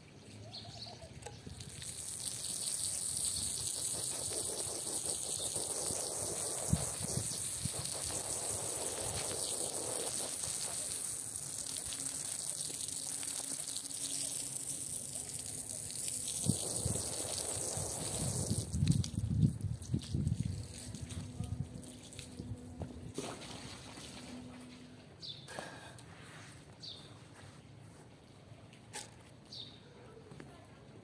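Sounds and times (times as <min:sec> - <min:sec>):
hose water spraying on rug: 0:01.4 - 0:22.5.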